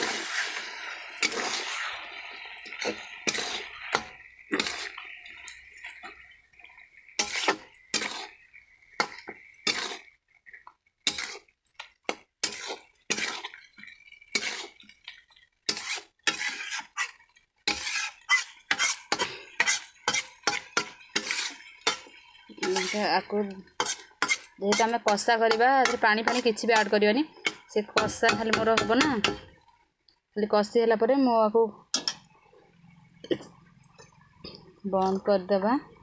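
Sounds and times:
metal spatula scraping iron pan: 0.0s - 2.0s, 2.7s - 5.0s, 7.2s - 10.1s, 11.1s - 11.5s, 12.1s - 29.5s.

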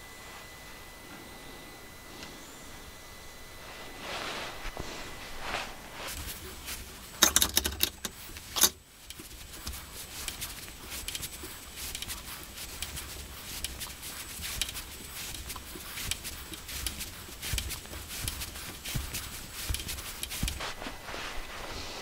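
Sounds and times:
sharp metal clicks and rattles: 7.2s - 9.3s
light irregular ticks: 7.2s - 20.6s.

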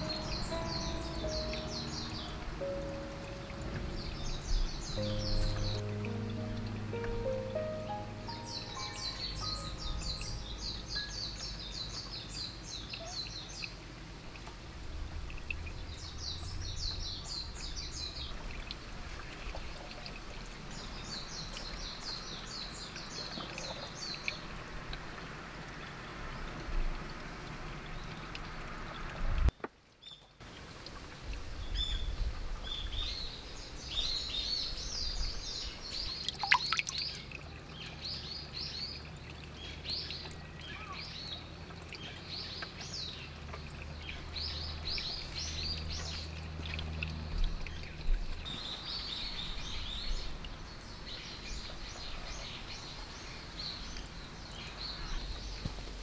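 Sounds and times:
small birds chirping: 0.0s - 14.5s, 31.6s - 56.0s
water trickling: 0.0s - 56.0s.

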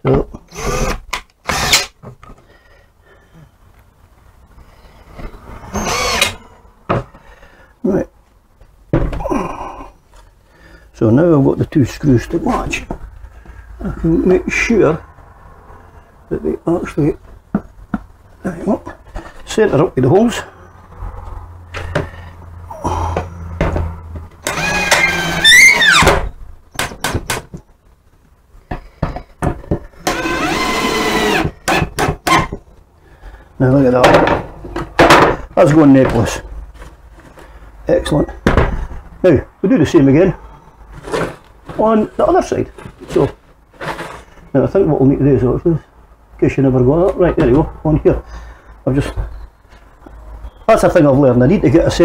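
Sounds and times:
cordless drill driving screws: 0.5s - 2.0s, 5.7s - 6.4s, 24.4s - 26.2s, 30.0s - 32.5s.

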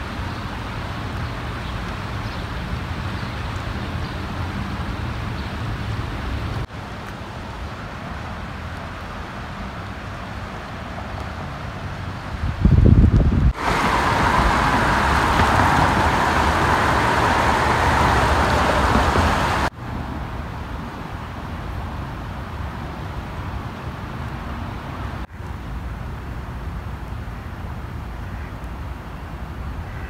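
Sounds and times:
wind buffeting microphone: 12.3s - 19.7s
fast-flowing river rushing: 13.6s - 19.7s.

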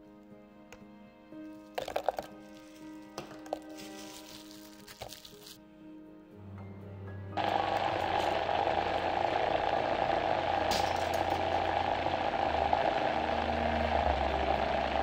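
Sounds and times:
blender motor running: 7.4s - 15.0s.

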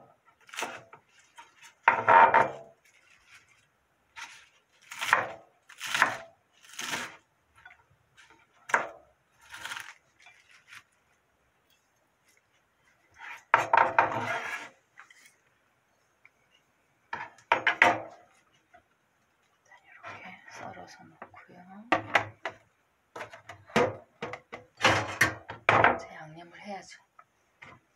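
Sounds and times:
knife scraping cutting board: 4.2s - 5.2s, 13.1s - 15.4s
knife cutting lettuce on wooden board: 4.2s - 7.2s, 8.2s - 10.9s.

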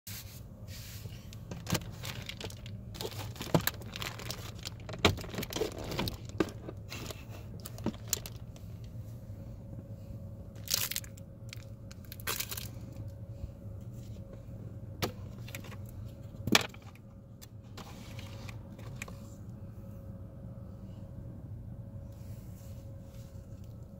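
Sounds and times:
steady low hum: 0.1s - 23.9s
snack bag crinkling: 1.5s - 8.5s, 10.6s - 12.8s.

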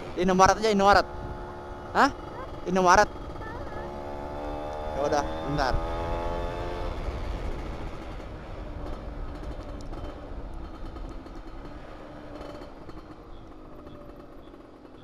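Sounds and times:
two-stroke motorcycle engine running: 0.0s - 15.0s
wind noise on microphone: 1.0s - 1.6s.

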